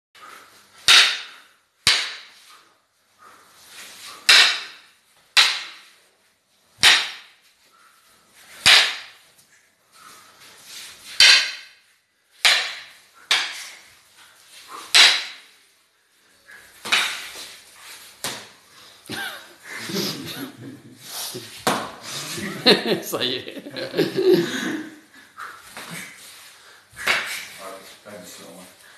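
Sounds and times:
sticks striking with sharp cracks: 0.8 - 2.5, 4.2 - 6.0, 6.8 - 7.4, 8.6 - 9.2, 11.1 - 13.9, 14.8 - 15.6, 16.8 - 17.5, 18.2 - 18.6, 27.0 - 27.5.

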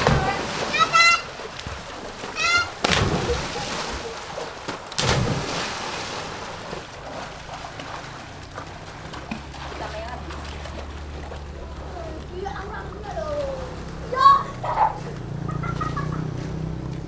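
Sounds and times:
children splashing into pool: 0.0 - 17.0
running water: 0.0 - 17.0
water churning and slapping: 0.0 - 17.0
child shouting: 0.2 - 1.4, 2.3 - 2.8, 12.4 - 15.0.

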